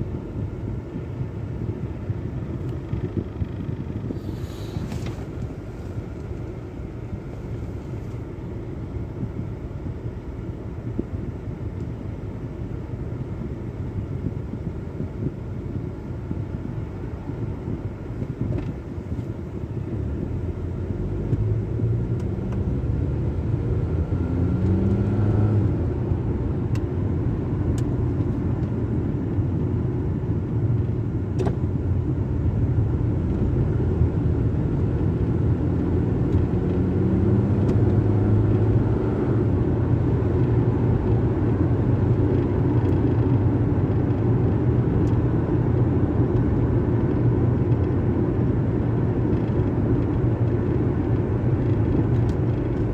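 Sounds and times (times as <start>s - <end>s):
car engine and tyre noise: 0.0s - 52.9s.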